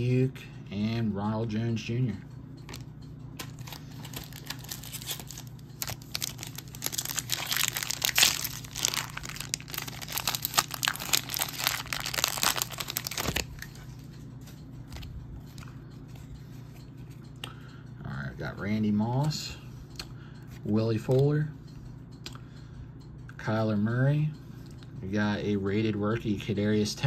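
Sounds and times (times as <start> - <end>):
cards ticking: 2.6 - 17.6
foil wrapper crinkling: 3.4 - 13.9.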